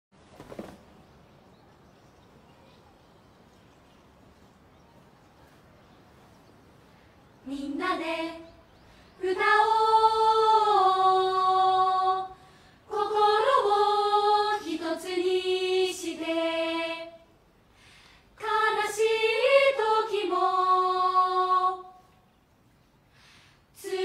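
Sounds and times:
girls' choir singing: 0:07.4 - 0:17.3, 0:18.4 - 0:22.0, 0:23.8 - 0:24.0.

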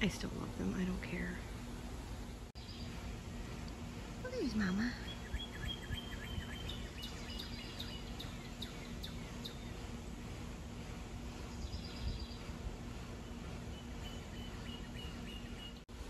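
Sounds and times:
birds chirping: 0:00.0 - 0:15.8
outdoor background noise: 0:00.0 - 0:16.0.

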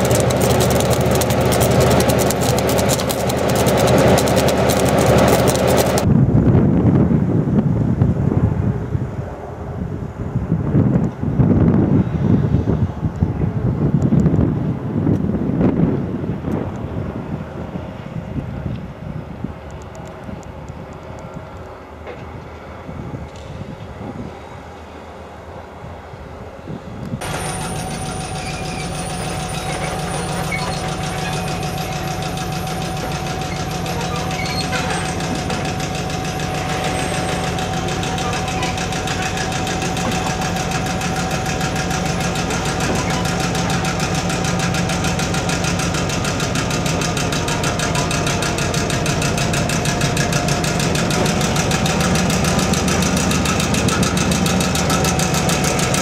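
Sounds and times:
wagons running on track: 0:00.0 - 0:06.1, 0:27.2 - 0:56.0
diesel locomotive engine: 0:00.0 - 0:56.0.

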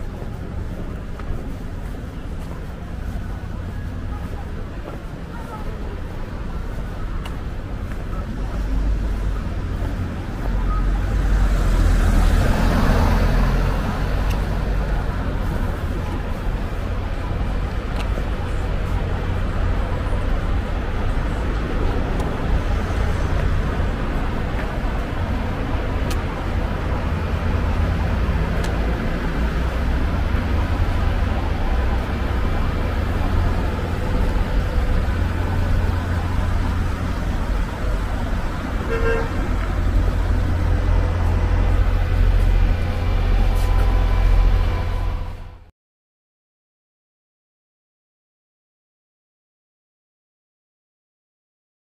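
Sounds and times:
low traffic rumble: 0:00.0 - 0:45.7
vehicle passing close by: 0:10.9 - 0:14.8.

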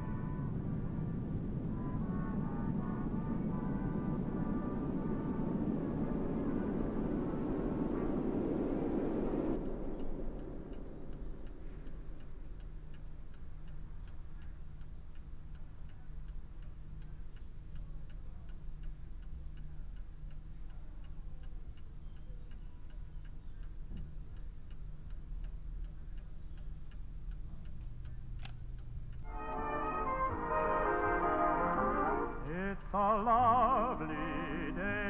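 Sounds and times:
low room hum: 0:00.0 - 0:35.0
clock ticking: 0:09.6 - 0:29.4.

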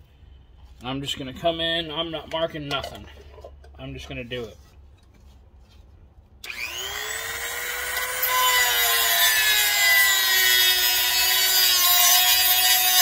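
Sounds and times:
rotary tool motor whine: 0:06.4 - 0:10.8
cut-off wheel grinding metal: 0:06.4 - 0:13.0.

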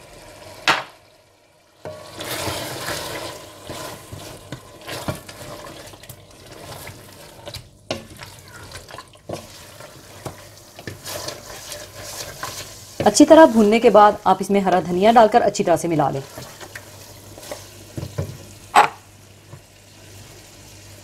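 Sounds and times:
food sizzling in a pan: 0:00.0 - 0:21.0
spoon scraping and knocking pan: 0:01.8 - 0:13.9, 0:16.2 - 0:19.6.

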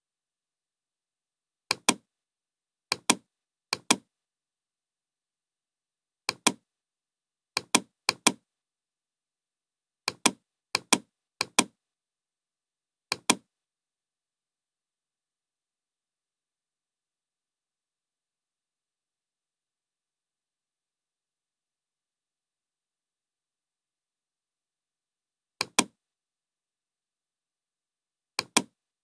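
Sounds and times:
computer mouse button clicks: 0:01.7 - 0:02.0, 0:02.9 - 0:04.0, 0:06.3 - 0:06.6, 0:07.6 - 0:08.4, 0:10.1 - 0:11.7, 0:13.1 - 0:13.4, 0:25.6 - 0:25.9, 0:28.4 - 0:28.7.

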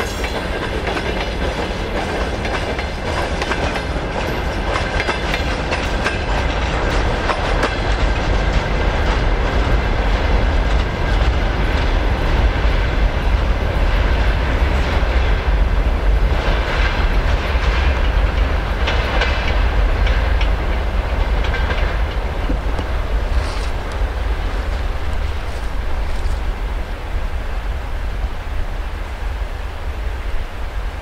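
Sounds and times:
train wheels clattering over rail joints: 0:00.0 - 0:26.5
freight train rumble: 0:00.0 - 0:31.0.

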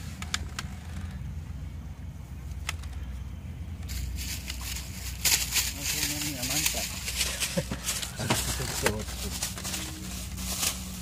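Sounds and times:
low motor hum: 0:00.0 - 0:11.0
rustling noise: 0:03.8 - 0:11.0.

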